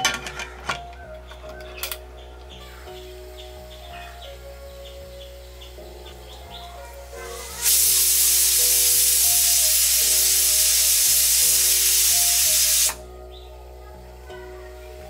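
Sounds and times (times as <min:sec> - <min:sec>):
pressure cooker steam hiss: 0:07.4 - 0:13.0.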